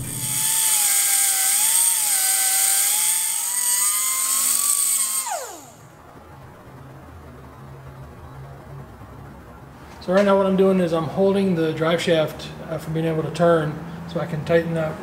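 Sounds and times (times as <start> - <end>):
grinder grinding metal: 0.0 - 5.8.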